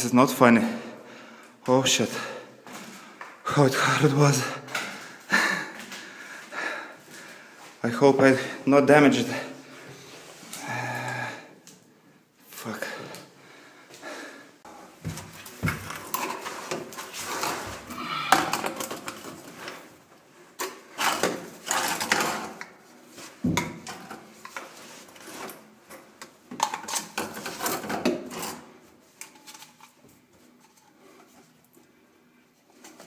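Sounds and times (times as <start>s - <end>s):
plastic pipes knocking and scraping: 15.0s - 19.8s, 23.4s - 25.4s, 26.2s - 28.6s.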